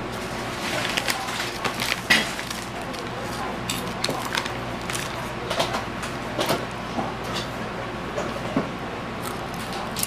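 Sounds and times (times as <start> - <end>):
steady low hum: 0.0 - 10.0
plastic bag crinkling: 0.2 - 5.6
person chewing crunchy snack: 9.2 - 10.0.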